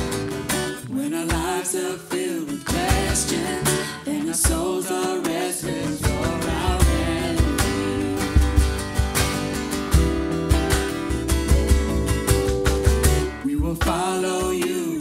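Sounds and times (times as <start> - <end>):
guitar: 0.0 - 15.0
person singing: 0.8 - 8.8, 13.3 - 15.0
steady drum beat: 1.3 - 1.6, 2.7 - 3.8, 4.4 - 14.9.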